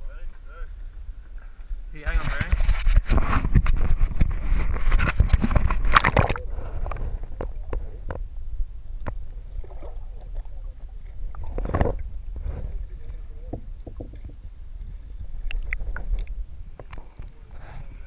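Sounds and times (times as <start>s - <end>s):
muffled underwater clicks: 2.1s - 8.2s, 9.0s - 12.8s, 13.5s - 14.5s, 15.4s - 17.6s
water splashing and sloshing: 2.4s - 8.3s, 8.9s - 18.0s.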